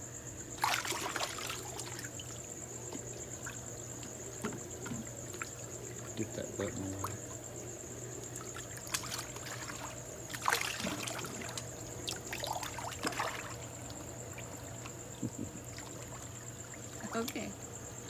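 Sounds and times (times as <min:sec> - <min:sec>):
steady low hum: 0:00.0 - 0:18.0
water splashing in hot tub: 0:00.5 - 0:18.0.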